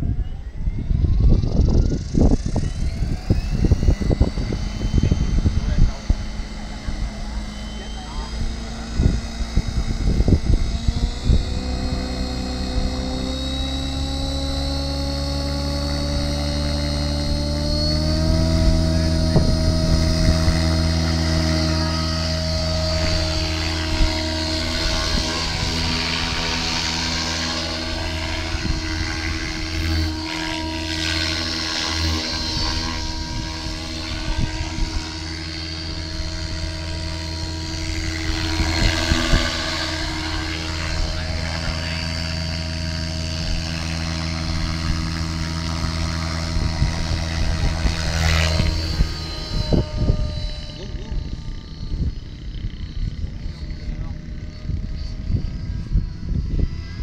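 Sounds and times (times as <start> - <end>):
model helicopter rotor whine: 0.0 - 57.0.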